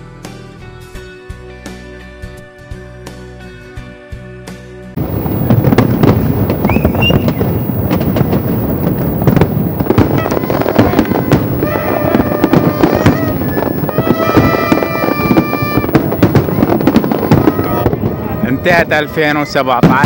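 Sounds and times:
steady held tones: 5.0 - 19.8
fireworks bangs and crackles: 5.0 - 20.0.

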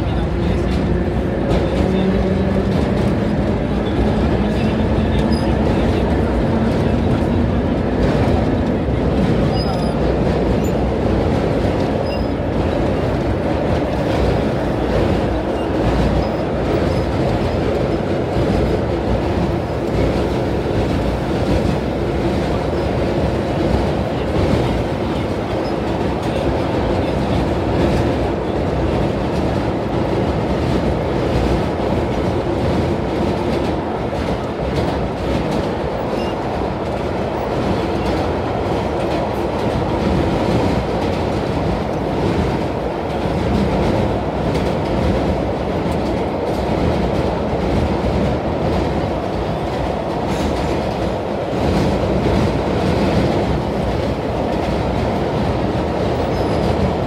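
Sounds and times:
subway car wheels running: 0.0 - 57.0.

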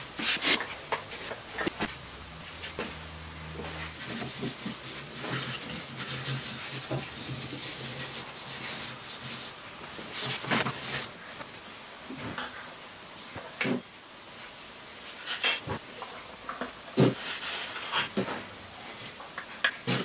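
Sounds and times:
rubbing and scraping handling noise: 0.0 - 11.5, 15.0 - 20.0.

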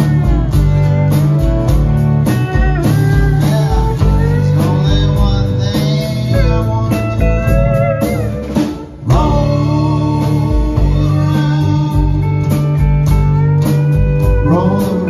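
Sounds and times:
country blues band playing: 0.0 - 15.0
sliding steel guitar: 0.0 - 15.0.

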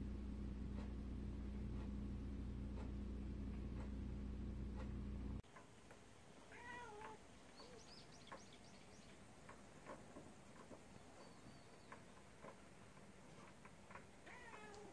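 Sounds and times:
low hum: 0.0 - 5.4
cat meowing: 6.5 - 7.2, 14.2 - 14.9.

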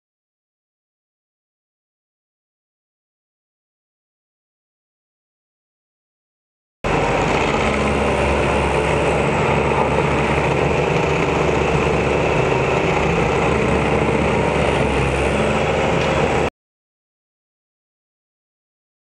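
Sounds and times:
stump grinder grinding: 6.9 - 16.5.

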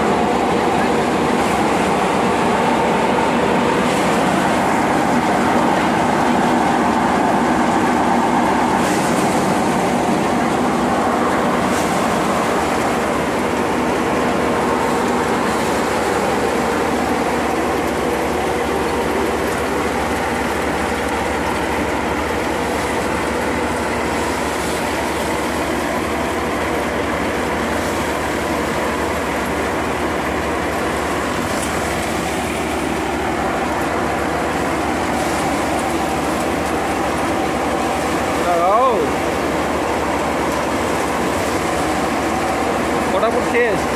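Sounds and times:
thresher mechanical drone: 0.0 - 43.9.

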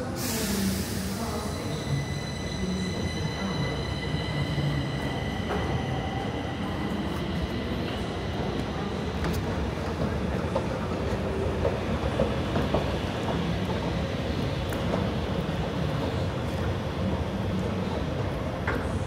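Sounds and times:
train high squeal: 0.0 - 8.1
low train rumble: 0.0 - 19.0.

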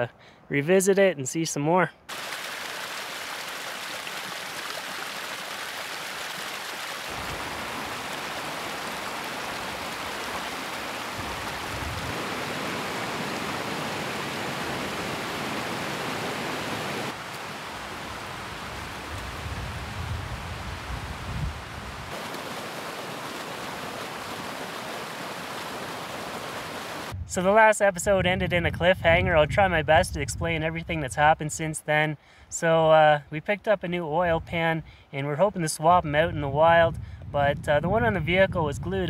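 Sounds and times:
water rushing over rocks: 2.1 - 19.4, 22.0 - 27.2.

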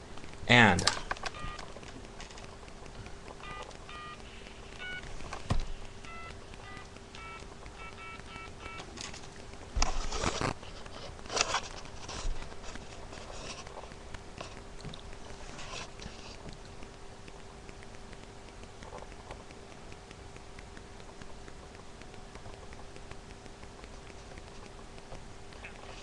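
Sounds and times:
phone keypad beeps: 1.2 - 1.7, 3.4 - 4.2, 4.8 - 5.1, 6.0 - 8.9.

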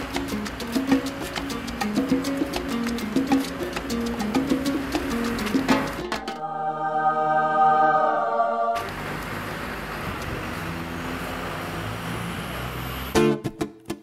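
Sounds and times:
strummed guitar music: 0.0 - 6.4, 13.2 - 14.0
city street traffic: 0.0 - 6.6, 7.2 - 14.0
held musical chord: 6.2 - 9.2.

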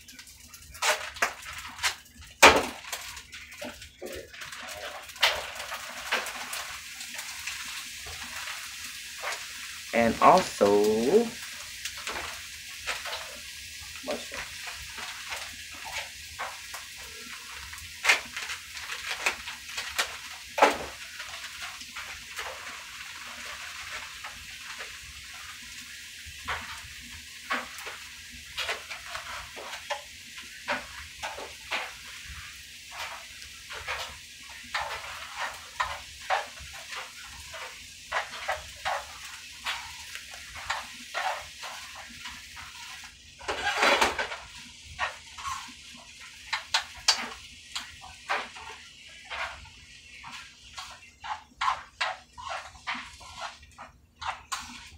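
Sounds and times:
vegetables sizzling in a pan: 0.0 - 54.9
utensil scraping a pan: 11.4 - 54.9.

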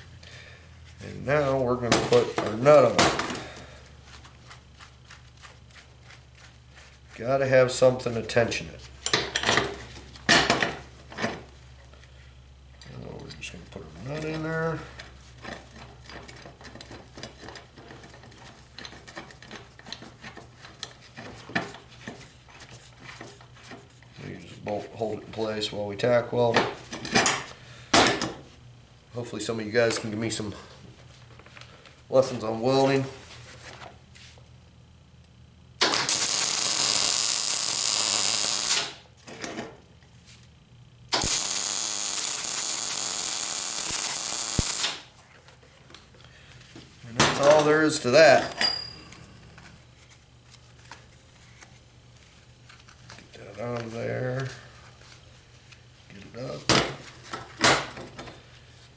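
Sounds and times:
welding arc buzzing: 35.8 - 39.1, 41.1 - 45.2
metal clink: 48.4 - 49.1.

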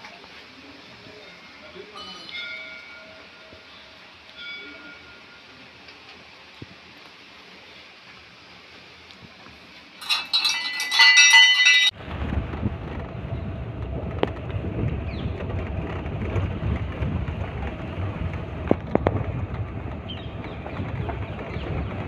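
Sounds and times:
metal bell ringing: 1.2 - 5.6, 10.0 - 12.0
vehicle rumble with wind noise: 11.9 - 22.0.

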